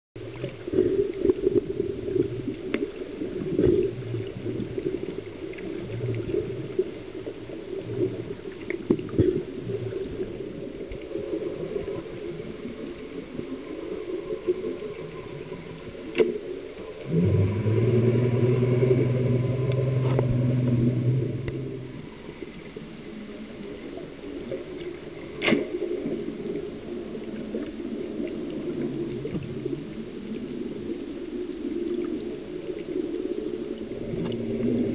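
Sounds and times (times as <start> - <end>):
underwater rumble: 0.2 - 34.9
low hum: 16.9 - 23.4
underwater clicks and knocks: 17.1 - 21.9.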